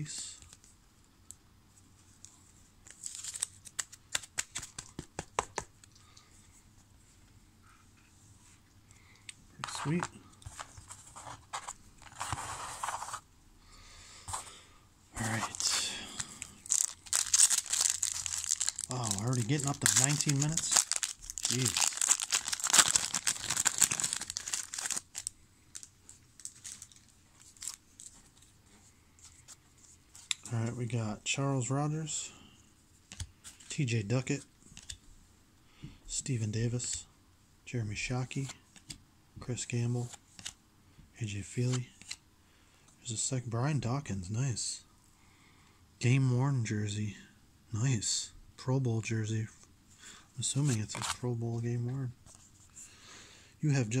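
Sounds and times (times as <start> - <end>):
plastic packaging crinkling and tearing: 2.9 - 4.8, 15.2 - 28.1.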